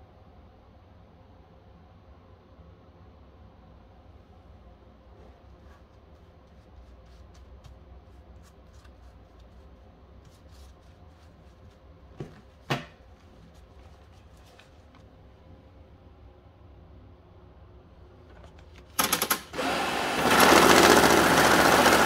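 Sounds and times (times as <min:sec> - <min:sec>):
paper money rustling: 0:05.9 - 0:11.8.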